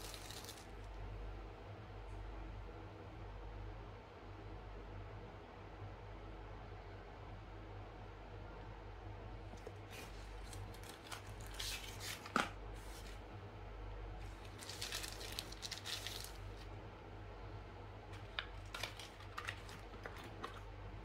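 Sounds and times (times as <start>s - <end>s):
packaging rustling and crinkling: 0.0s - 0.7s, 9.6s - 13.2s, 14.3s - 16.7s, 18.2s - 20.7s
steady low hum: 0.0s - 21.0s.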